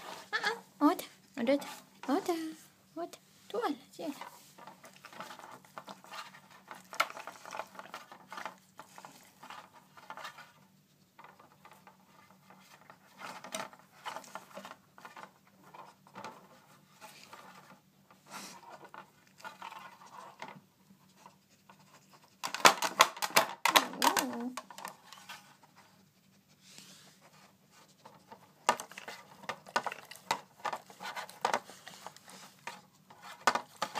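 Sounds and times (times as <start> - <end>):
plastic pieces tapping and clicking: 22.4 - 25.1.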